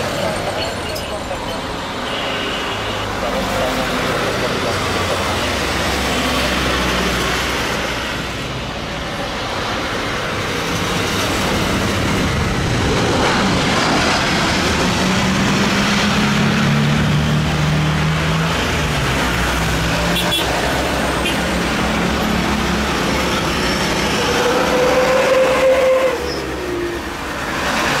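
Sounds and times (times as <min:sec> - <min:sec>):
jet engines running: 0:03.4 - 0:19.9.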